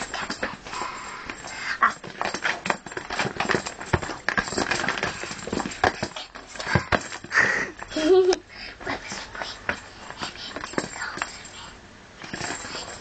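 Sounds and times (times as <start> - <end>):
rustling: 0.0 - 11.6
knocks and thumps: 1.3 - 7.9.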